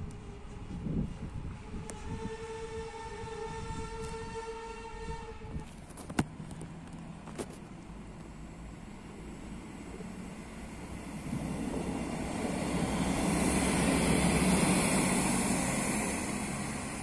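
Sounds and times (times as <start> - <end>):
train horn long note: 0.1 - 5.7.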